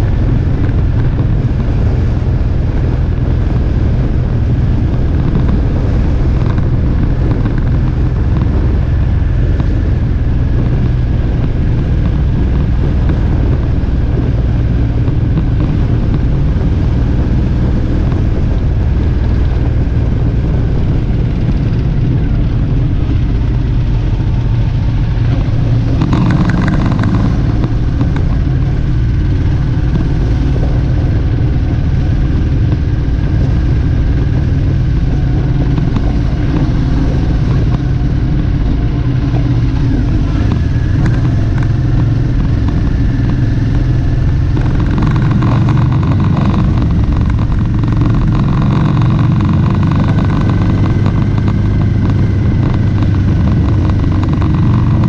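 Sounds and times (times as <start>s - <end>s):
motorcycle engine running: 0.0s - 55.0s
wind and road noise: 0.0s - 55.0s.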